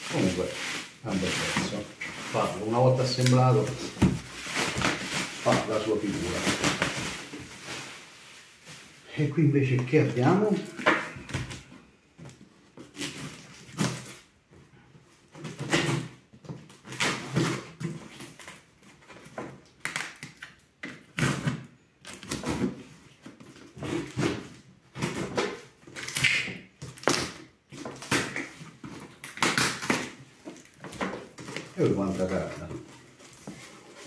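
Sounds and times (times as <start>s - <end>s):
tape and cardboard tearing: 12.8s - 14.3s, 15.4s - 31.8s.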